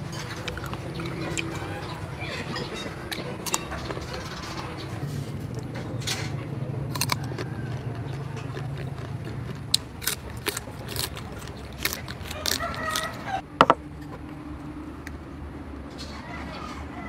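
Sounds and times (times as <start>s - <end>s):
crunchy chewing: 0.0s - 13.4s.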